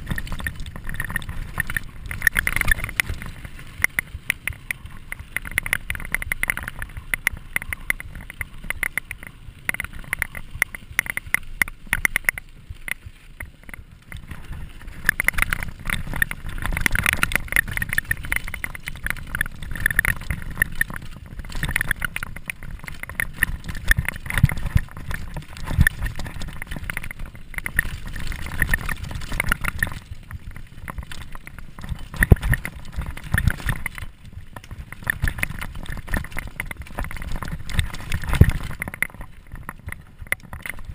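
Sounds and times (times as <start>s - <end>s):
bike rattling over bumps: 0.0s - 40.9s
tyres rumbling on gravel: 0.0s - 40.9s
wind on microphone: 13.6s - 40.9s.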